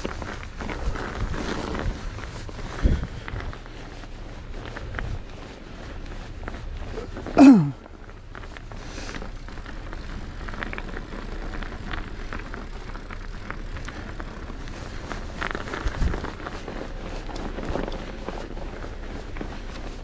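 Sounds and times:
bike rattles and clicks: 0.0 - 20.0
bike tyres rolling on snow: 0.0 - 20.0.

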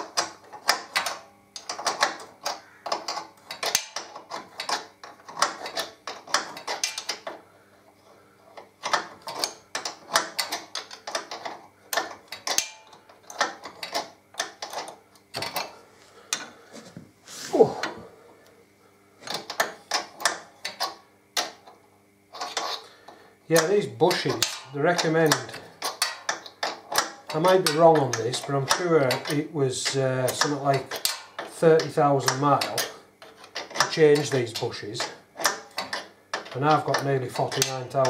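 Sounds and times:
socket ratchet clicking: 0.0 - 7.4, 23.5 - 38.0.

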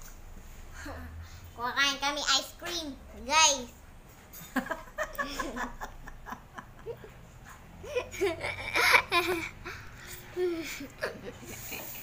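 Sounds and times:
girl giggling and laughing: 4.5 - 7.2, 7.8 - 12.0.

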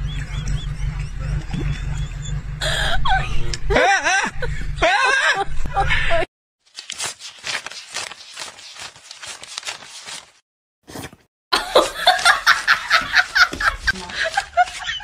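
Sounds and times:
rapid laughter: 0.3 - 6.3, 11.6 - 15.0
banknotes riffling: 6.7 - 10.4, 12.0 - 15.0.

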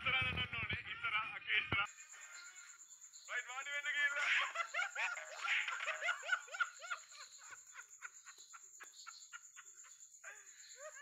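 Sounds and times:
woman laughing hard: 4.2 - 11.0.

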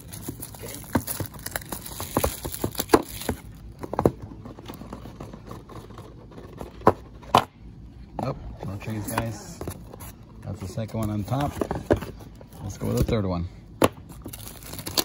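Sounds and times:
plastic bag crinkling: 0.0 - 3.6
cardboard boxes knocking: 0.8 - 4.2.

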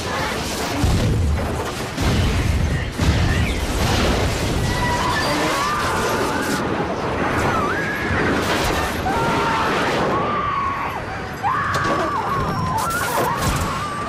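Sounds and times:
roar and crashes of explosion: 0.0 - 10.8
passengers screaming: 4.5 - 14.0.

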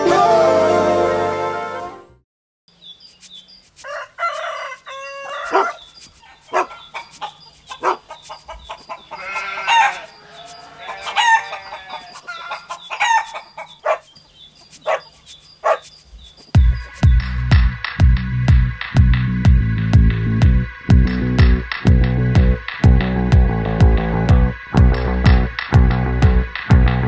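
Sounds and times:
chickens clucking: 3.1 - 17.0
rooster crowing: 3.8 - 7.1, 8.9 - 13.9.

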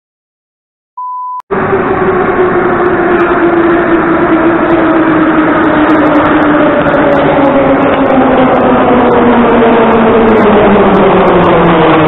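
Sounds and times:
test-tone beep: 1.0 - 1.4
metro train running: 1.5 - 12.0
traction motor whine: 1.5 - 12.0.

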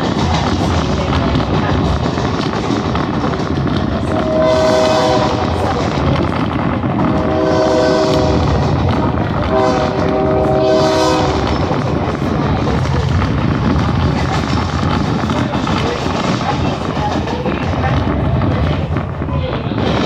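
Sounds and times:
train coach rumbling on track: 0.0 - 20.0
locomotive horn blasts: 4.2 - 5.6, 7.0 - 8.6, 9.5 - 11.5.

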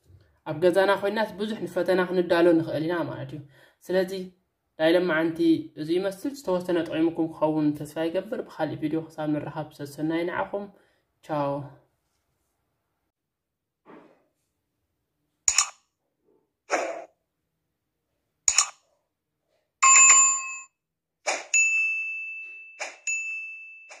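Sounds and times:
short swishes: 16.7 - 17.1
mouse clicks: 18.5 - 18.8
notification bell ding: 19.8 - 20.7.

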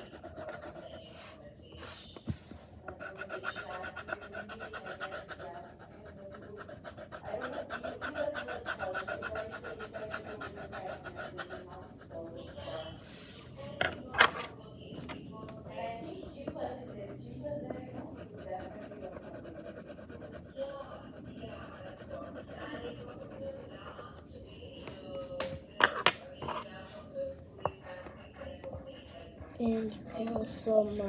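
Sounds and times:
scribbling on paper: 0.0 - 13.8, 15.7 - 25.1.

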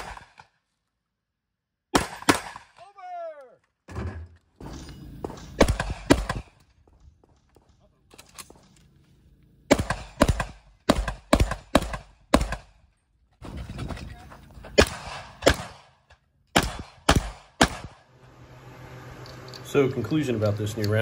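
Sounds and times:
shotgun firing: 0.0 - 0.5, 1.9 - 2.8, 5.6 - 6.6, 9.7 - 12.8, 14.8 - 18.0.

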